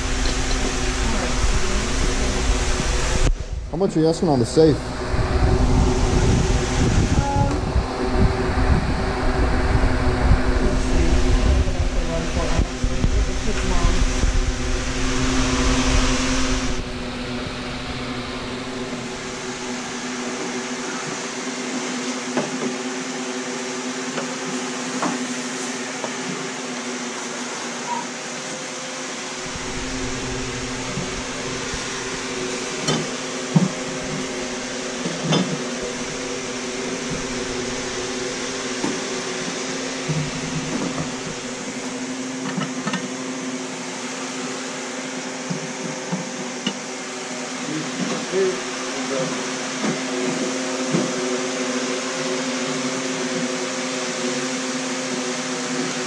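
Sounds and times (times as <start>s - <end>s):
loud rush of noise: 0.0s - 20.8s, 29.2s - 35.1s
steady machine hum: 0.0s - 56.0s.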